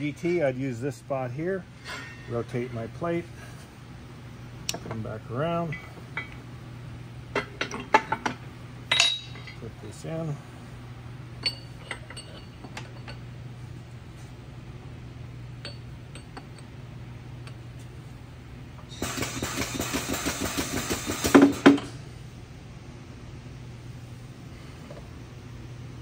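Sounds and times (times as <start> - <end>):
steady low hum: 0.0 - 19.0, 21.0 - 26.0
steel parts clinking: 7.3 - 9.7, 11.4 - 13.3
fast mechanical rattling: 19.0 - 21.7.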